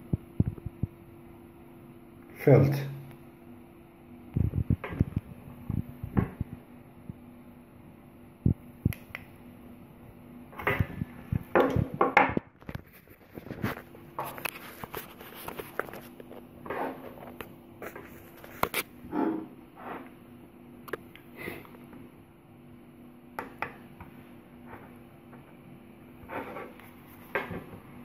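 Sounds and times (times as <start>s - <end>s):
microphone handling noise: 0.1s - 1.0s, 4.3s - 6.6s, 10.6s - 14.3s.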